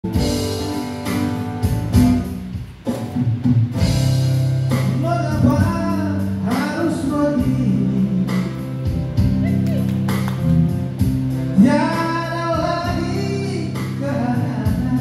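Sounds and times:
acoustic guitars playing: 0.0s - 15.0s
man singing: 4.7s - 9.1s, 11.4s - 15.0s.

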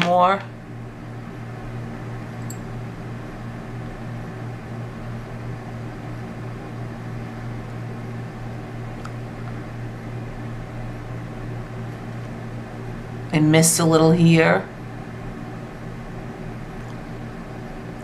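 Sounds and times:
low background hum: 0.0s - 18.0s.

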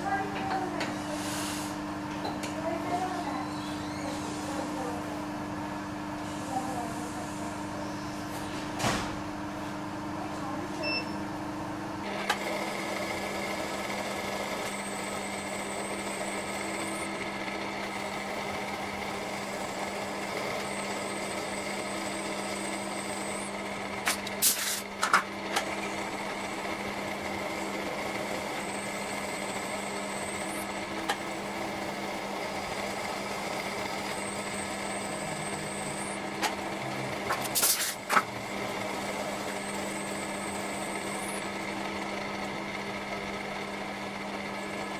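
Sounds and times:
milling machine motor hum: 0.0s - 44.9s
high cutting whine: 12.0s - 44.9s.

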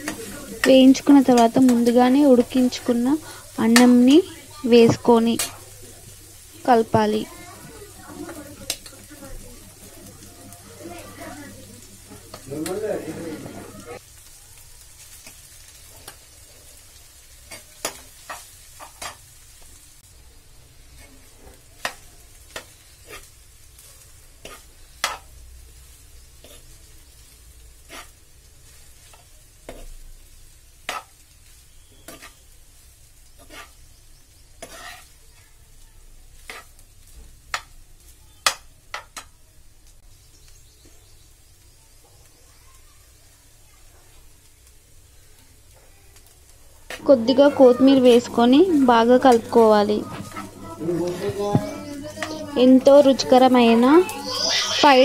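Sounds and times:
spoon scraping frying pan: 0.0s - 5.6s, 6.8s - 14.0s, 17.5s - 19.2s, 20.9s - 23.4s, 24.4s - 25.4s, 27.8s - 28.2s, 29.0s - 30.0s, 30.8s - 32.5s, 33.3s - 35.2s, 36.4s - 36.8s, 46.9s - 55.0s
faint frying sizzle: 0.0s - 55.0s.

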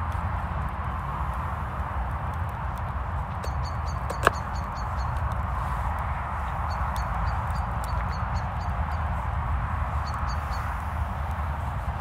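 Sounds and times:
wood fire crackling: 0.0s - 3.5s.

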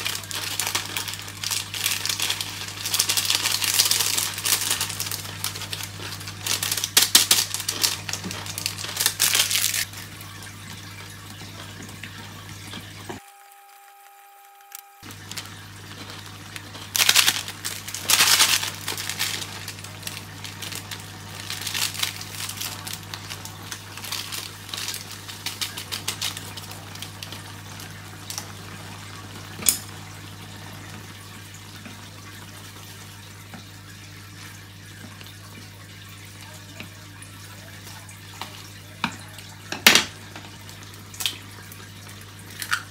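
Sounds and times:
plastic packet tearing and crinkling: 0.0s - 9.9s, 14.6s - 28.5s
powder rustling from packet: 0.0s - 9.9s, 15.0s - 27.9s.

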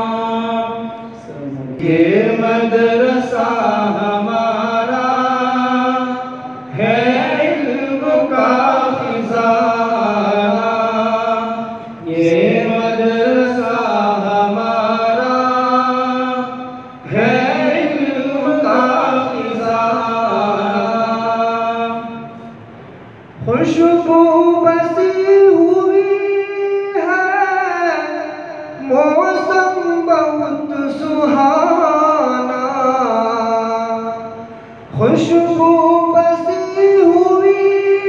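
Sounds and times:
person singing devotional song: 0.0s - 22.4s.

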